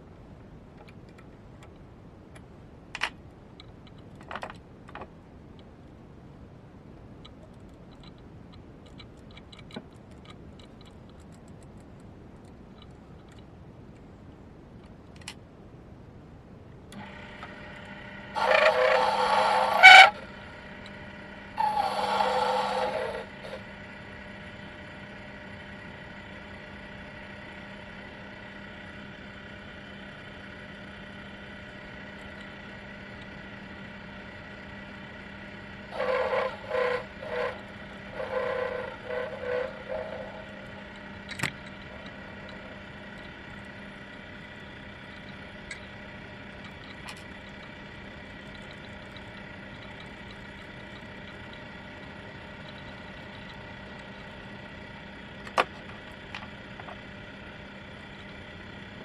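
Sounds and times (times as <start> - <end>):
lathe motor whine: 16.9 - 59.0
tool scraping steel: 18.3 - 20.3, 21.6 - 23.6, 35.9 - 42.8.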